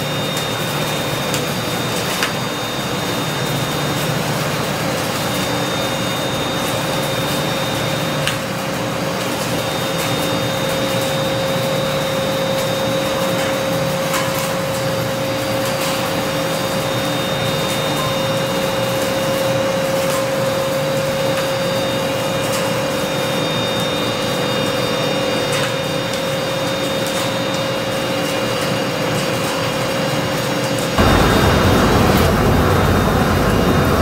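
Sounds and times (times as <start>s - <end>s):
machinery running with whine: 0.0s - 34.0s.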